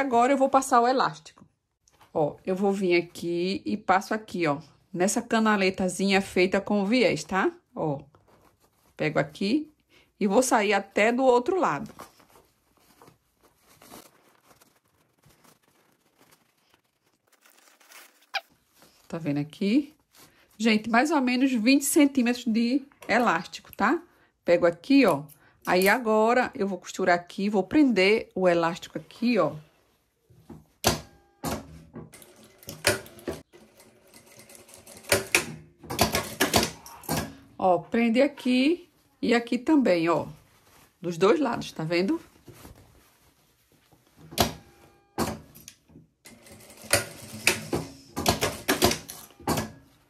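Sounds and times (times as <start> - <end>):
fabric rustling: 5.6 - 21.8, 37.6 - 45.1
sewing machine stitching: 46.3 - 49.8.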